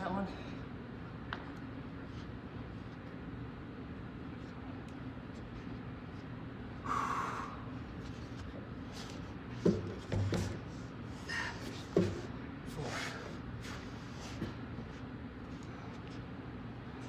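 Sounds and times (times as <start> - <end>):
steady low hum: 0.0 - 17.0
breathing: 6.8 - 7.6.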